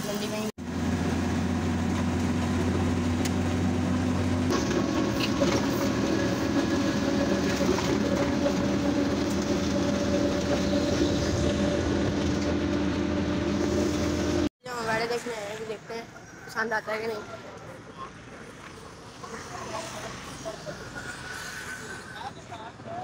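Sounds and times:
motor rickshaw engine running: 0.0s - 14.5s
road noise: 0.0s - 23.0s.

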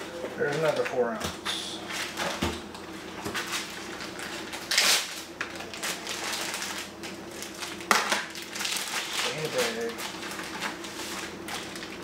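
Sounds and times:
plastic bag rustling: 3.3s - 12.0s.

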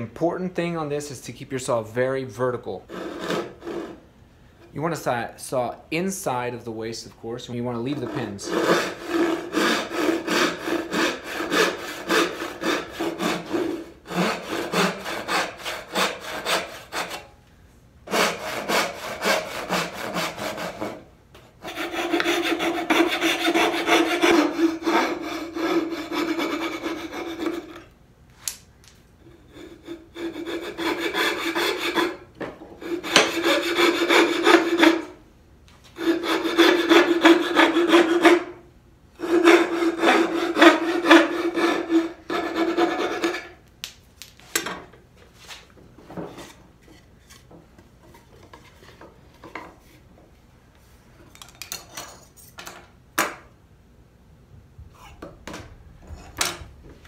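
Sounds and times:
backsaw cutting wood: 2.9s - 4.0s, 7.9s - 17.3s, 18.1s - 21.0s, 21.6s - 27.9s, 29.5s - 35.2s, 36.0s - 38.6s, 39.2s - 43.6s.

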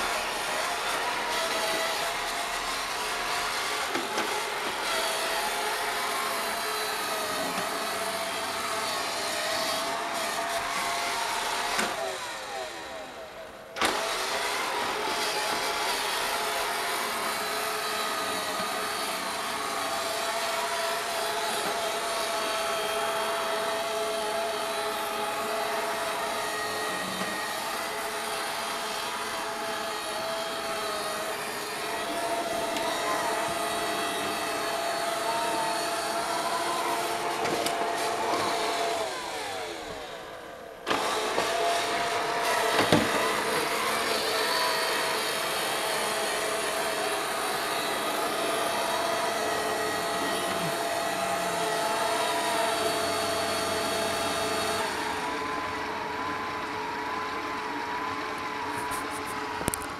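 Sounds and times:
robot vacuum motor whine: 0.0s - 59.9s.

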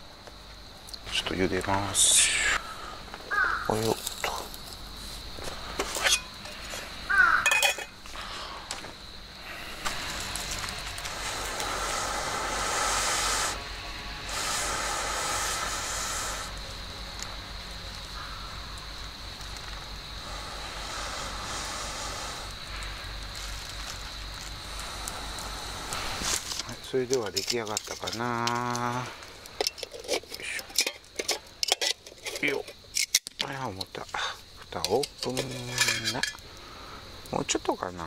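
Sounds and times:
fire and pot hissing: 0.0s - 37.8s
metal pot lid clinking: 7.4s - 7.9s.

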